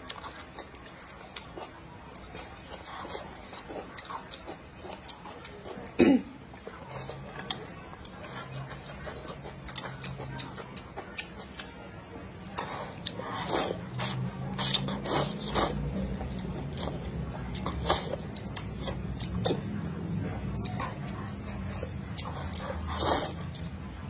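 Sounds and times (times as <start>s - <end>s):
chewing: 0.0s - 24.0s
slurping noodles: 12.6s - 19.6s, 20.7s - 23.6s.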